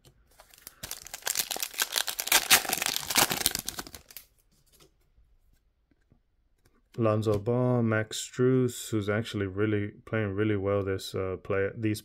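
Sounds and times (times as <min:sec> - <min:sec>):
foil wrapper tearing and crinkling: 0:00.4 - 0:04.3.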